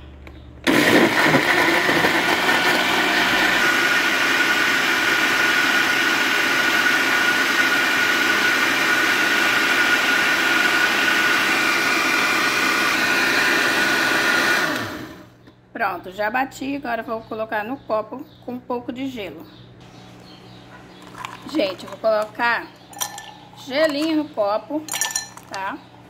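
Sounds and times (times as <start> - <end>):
blender motor whining: 0.6 - 15.3.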